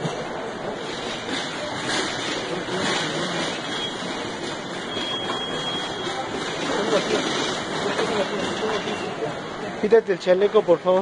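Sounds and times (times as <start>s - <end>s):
faint voices: 0.0s - 11.0s
store hubbub: 0.0s - 11.0s.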